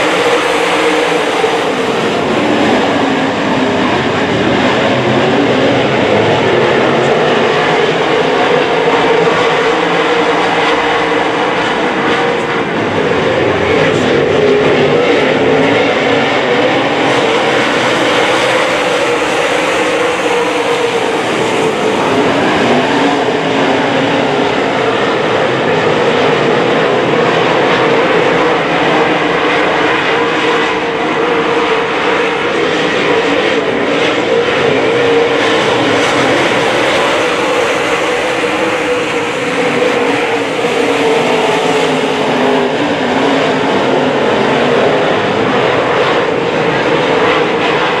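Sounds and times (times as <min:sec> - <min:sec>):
race car engines roaring: 0:00.0 - 0:48.0.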